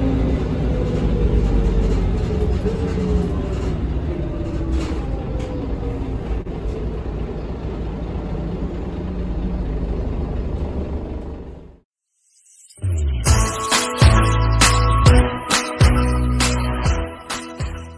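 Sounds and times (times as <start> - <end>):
bus engine rumble: 0.0 - 11.9.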